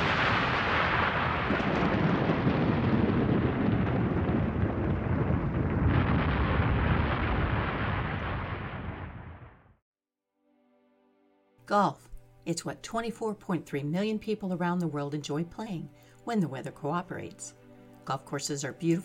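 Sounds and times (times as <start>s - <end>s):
thunder rumbling: 0.0s - 9.8s.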